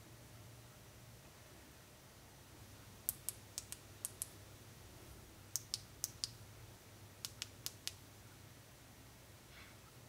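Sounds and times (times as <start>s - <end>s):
faint room noise: 0.0s - 10.0s
light sharp clicks: 7.2s - 8.0s.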